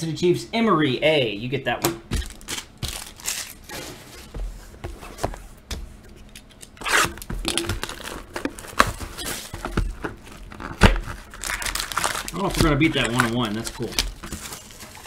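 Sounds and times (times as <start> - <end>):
plastic crumpled by hand: 2.2 - 3.7, 7.5 - 15.0
plastic shrink wrap tearing: 2.2 - 3.7, 6.8 - 9.5, 10.2 - 15.0.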